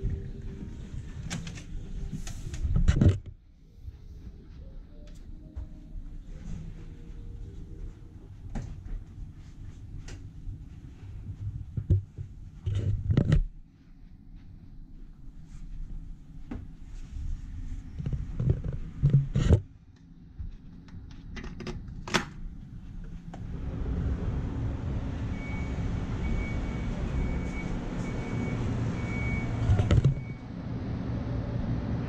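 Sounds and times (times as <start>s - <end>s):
outdoor rumble and hiss: 13.6s - 32.0s
faint high beeps: 25.3s - 30.5s.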